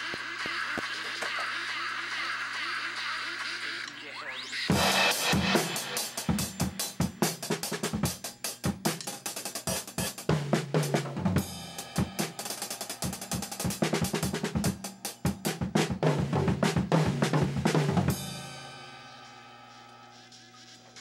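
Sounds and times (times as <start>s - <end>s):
drum kit playing fast: 4.7s - 20.2s.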